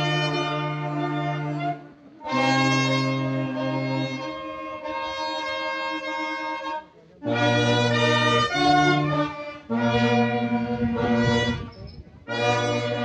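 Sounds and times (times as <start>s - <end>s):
brass band playing slow chords: 0.0s - 13.0s.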